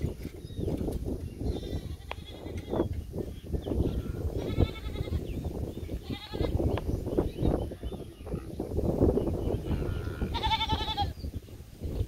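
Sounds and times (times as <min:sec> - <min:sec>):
wind rumbling: 0:00.0 - 0:12.0
goat bleating: 0:01.5 - 0:02.8, 0:03.8 - 0:05.2, 0:06.0 - 0:06.6, 0:10.0 - 0:11.2.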